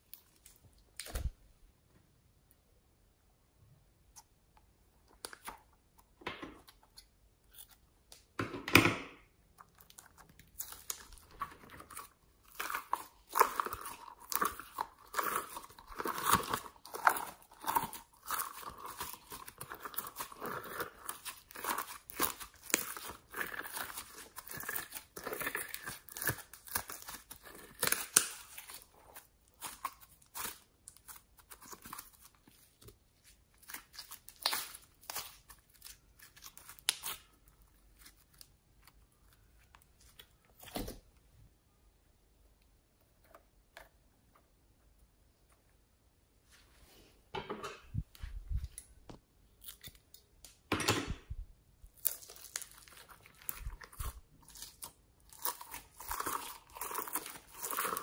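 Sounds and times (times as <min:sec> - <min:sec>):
slime squishing with sticky crackles: 0:09.3 - 0:41.0, 0:51.8 - 0:58.0.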